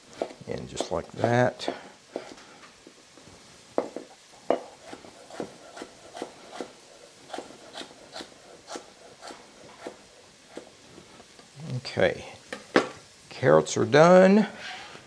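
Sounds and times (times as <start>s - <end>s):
knife chopping on wooden board: 3.8s - 6.7s.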